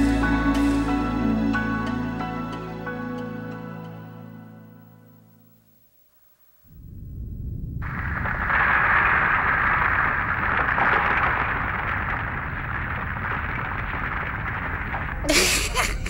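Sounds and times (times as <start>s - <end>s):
rumbling roar of collapsing rubble: 7.0s - 15.7s.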